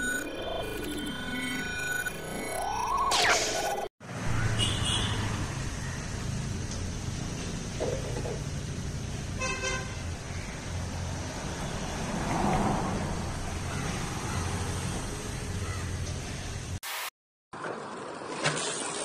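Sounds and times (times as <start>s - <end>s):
low traffic rumble: 4.0s - 16.8s.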